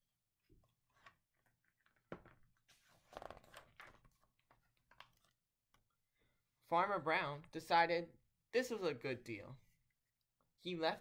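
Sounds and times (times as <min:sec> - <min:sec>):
book pages rustling: 0:00.5 - 0:05.4.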